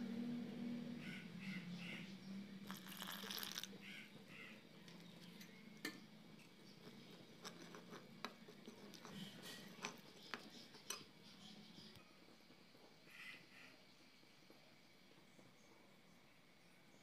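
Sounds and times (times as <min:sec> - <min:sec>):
water pouring: 0:02.6 - 0:03.8
spoon stirring thick batter: 0:02.7 - 0:03.8, 0:04.8 - 0:12.9
spoon clicking against bowl: 0:06.8 - 0:11.1.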